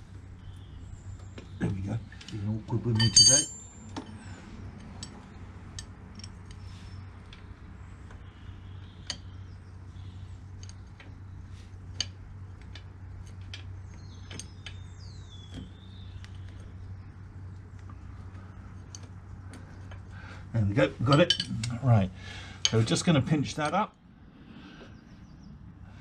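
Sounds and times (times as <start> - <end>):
bird chirping: 0.0 - 2.2, 7.8 - 11.6, 13.6 - 18.5.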